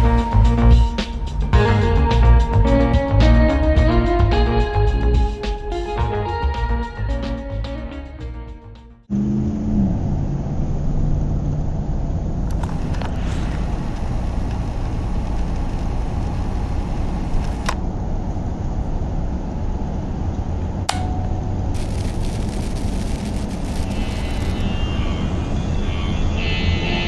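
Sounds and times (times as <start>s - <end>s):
car engine and tyre rumble: 9.1s - 26.4s
short clicks or knocks: 20.9s - 21.4s.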